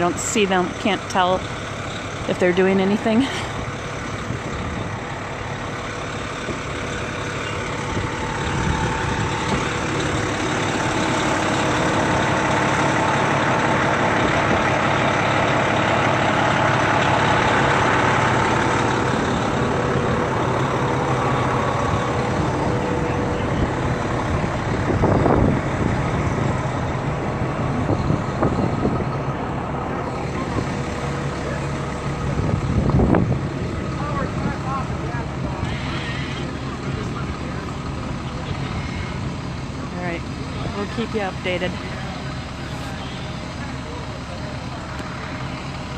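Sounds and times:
fire truck engines idling: 0.0s - 45.9s.

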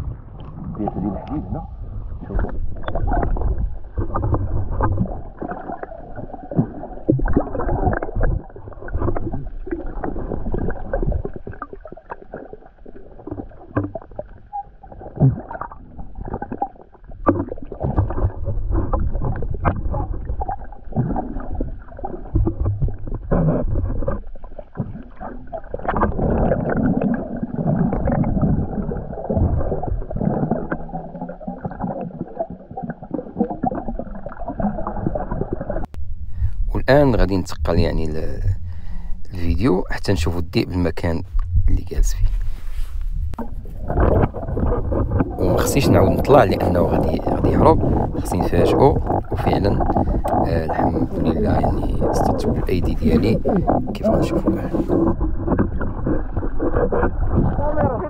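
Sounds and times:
muffled underwater sloshing: 0.0s - 58.0s
knocks and splashes: 6.5s - 12.4s, 13.2s - 14.3s, 15.1s - 30.9s, 43.3s - 58.0s.

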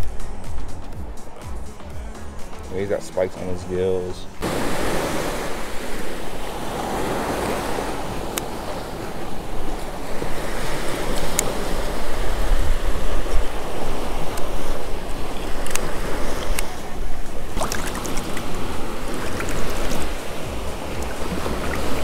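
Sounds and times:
surf washing up beach: 0.0s - 22.0s
wind buffeting microphone: 0.0s - 22.0s
small sharp clicks: 15.6s - 16.7s.

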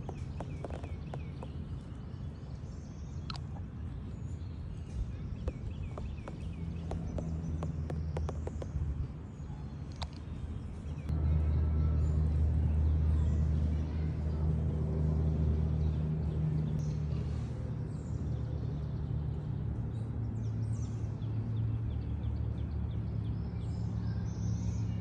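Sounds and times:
faint bird chirps: 0.0s - 3.7s
low engine hum: 0.0s - 25.0s.

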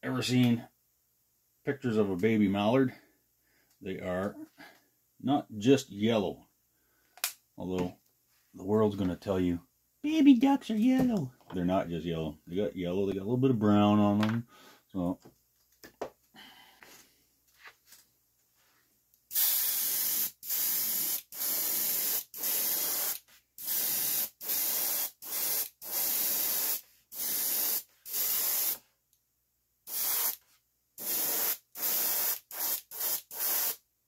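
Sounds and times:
airbrush spraying hiss: 19.3s - 28.8s, 29.9s - 30.4s, 31.0s - 33.8s.

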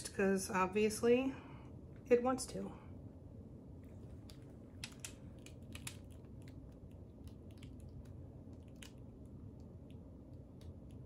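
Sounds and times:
low steady hum: 0.0s - 11.0s
canvas clicks and crackles: 3.8s - 11.0s.

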